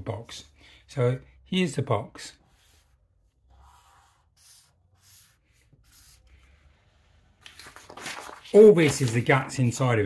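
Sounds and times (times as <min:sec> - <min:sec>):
marker pen scratching on paper: 0:02.4 - 0:07.2.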